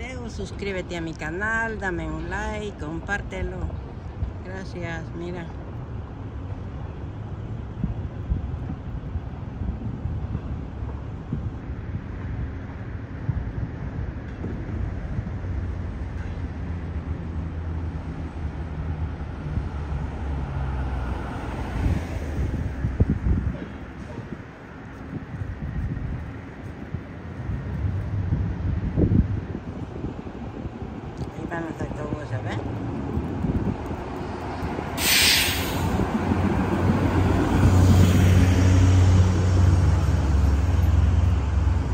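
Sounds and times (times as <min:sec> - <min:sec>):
low engine rumble of traffic: 0:00.0 - 0:41.9
passing car hiss: 0:34.4 - 0:41.9
short burst of hiss: 0:35.0 - 0:36.0.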